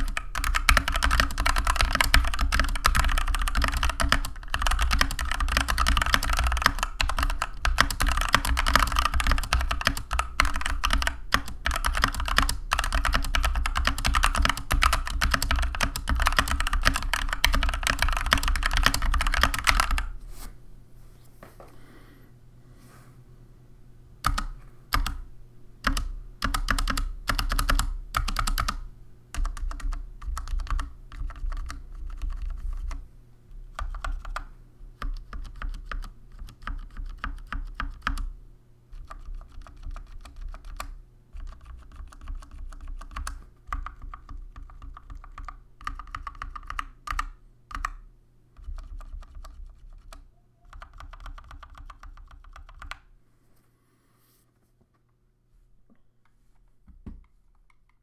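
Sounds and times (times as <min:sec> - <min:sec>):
mechanical keyboard key presses: 0:00.0 - 0:20.0, 0:25.8 - 0:28.8, 0:39.0 - 0:48.0.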